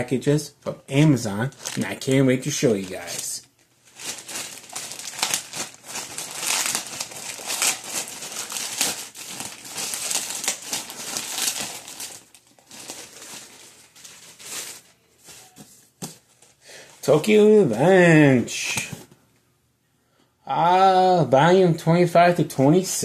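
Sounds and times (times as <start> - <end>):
plastic mailer bag tearing and crinkling: 1.4 - 15.6.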